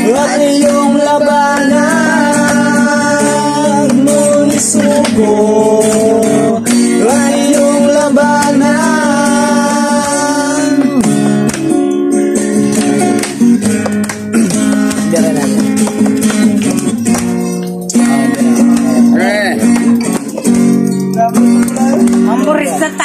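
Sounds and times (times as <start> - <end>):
man singing: 0.0 - 11.2
acoustic guitar strumming: 0.0 - 23.0.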